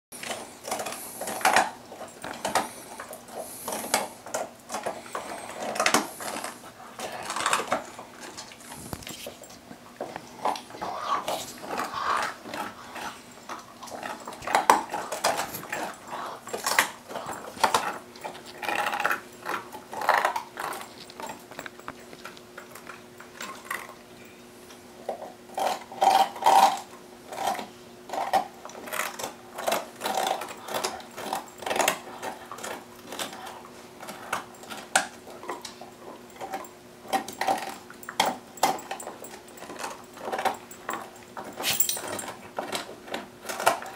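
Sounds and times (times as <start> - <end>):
dogs chewing on bones: 0.1 - 43.9
faint steady hum: 0.2 - 43.9.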